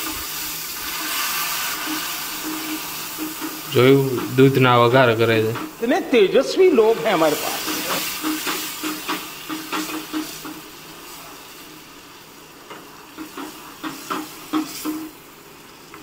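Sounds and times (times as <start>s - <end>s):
spoon scraping and knocking pan: 0.0s - 5.8s, 7.3s - 10.7s, 12.7s - 15.1s
semolina sizzling in a pan: 0.0s - 16.0s.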